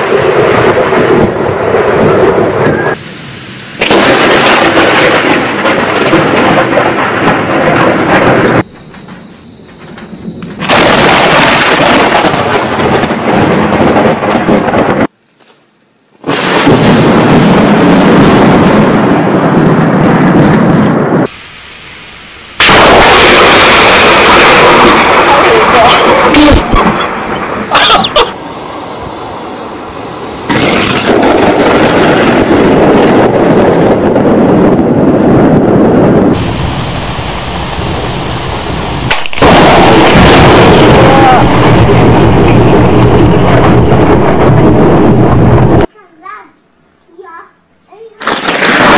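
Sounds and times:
loud thunder: 0:00.0 - 0:15.1, 0:16.2 - 0:45.9, 0:48.2 - 0:48.9
loud steady rushing noise: 0:21.2 - 0:45.9.

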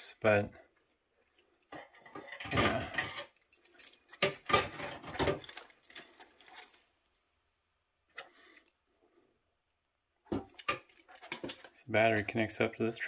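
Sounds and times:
clicks and rustling of wires: 0:01.3 - 0:07.2, 0:10.3 - 0:12.4.

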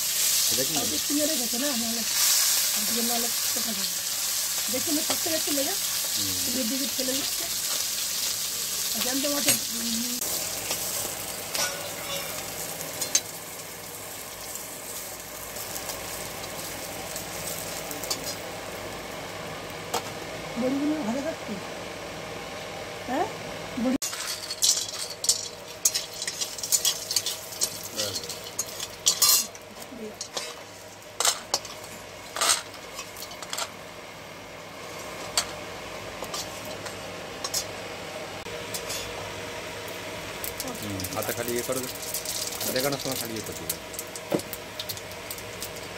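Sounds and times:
fish sizzling in oil: 0:00.0 - 0:21.3, 0:24.0 - 0:45.9
constant hum: 0:00.0 - 0:45.9
metal spatula scraping a wok: 0:11.5 - 0:13.2, 0:24.0 - 0:29.5, 0:30.2 - 0:33.6, 0:38.7 - 0:39.1.

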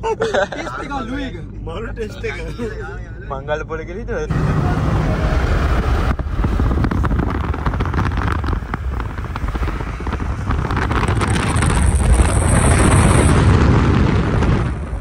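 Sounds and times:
vehicle rumble: 0:00.0 - 0:15.0
wind buffeting microphone: 0:04.4 - 0:15.0.

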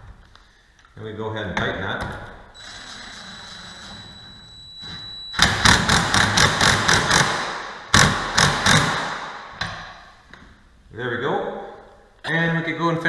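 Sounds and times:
impact driver whine: 0:02.6 - 0:09.1.

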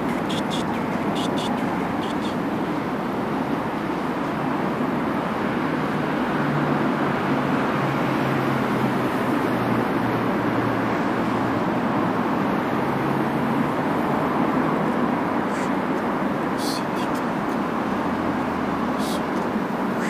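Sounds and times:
passenger train rumbling: 0:00.0 - 0:05.0.

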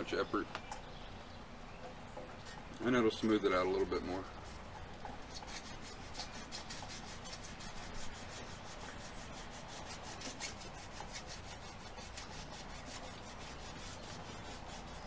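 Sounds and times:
cloth rubbing a steel blade: 0:05.2 - 0:15.0.

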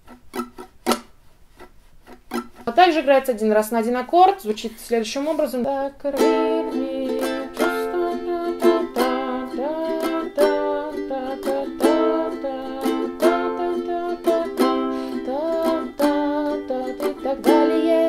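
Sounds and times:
ukulele strumming: 0:00.0 - 0:03.2, 0:05.7 - 0:18.0
person singing: 0:05.5 - 0:18.0.

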